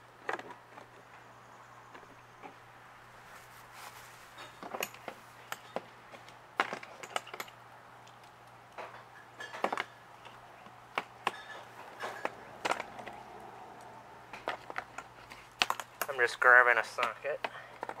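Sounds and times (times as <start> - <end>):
metal parts clinking: 6.6 - 8.2.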